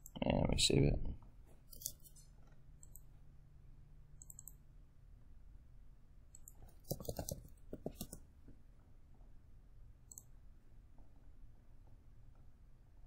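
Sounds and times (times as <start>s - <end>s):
computer mouse clicks: 1.7s - 3.1s, 4.2s - 4.6s, 6.3s - 8.2s, 10.1s - 10.3s.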